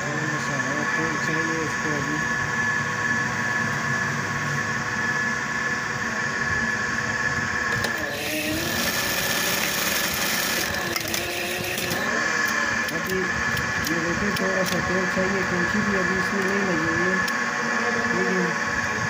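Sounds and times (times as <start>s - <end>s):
sewing machine stitching: 7.7s - 12.1s
sewing machine motor humming: 7.7s - 17.1s.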